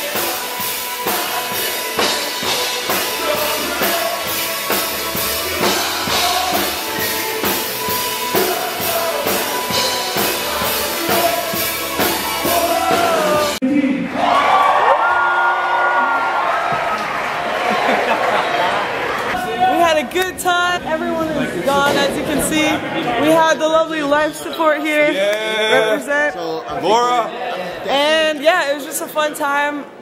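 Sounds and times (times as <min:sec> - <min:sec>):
drum kit beat: 0:00.0 - 0:13.6
live band playing: 0:00.0 - 0:13.6
person singing: 0:00.0 - 0:13.6.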